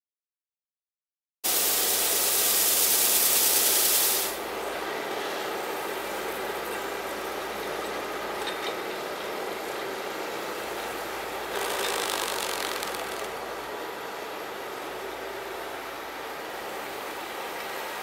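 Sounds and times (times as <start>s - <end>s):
engine hum: 10.4s - 16.9s
brush hissing sweeping snow: 11.5s - 13.4s.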